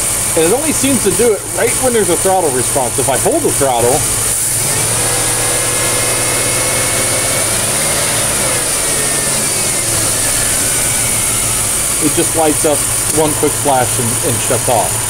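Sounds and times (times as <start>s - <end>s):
car engine revving with a misfire: 0.0s - 15.0s.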